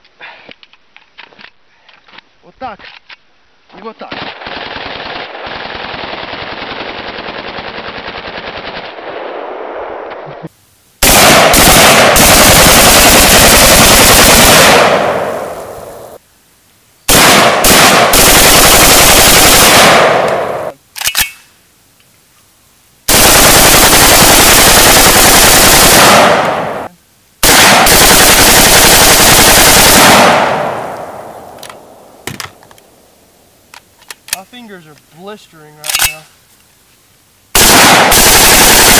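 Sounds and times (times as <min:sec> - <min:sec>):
automatic gunfire bursts: 0:11.0 - 0:15.4, 0:17.1 - 0:20.7, 0:23.1 - 0:30.9, 0:37.6 - 0:38.9.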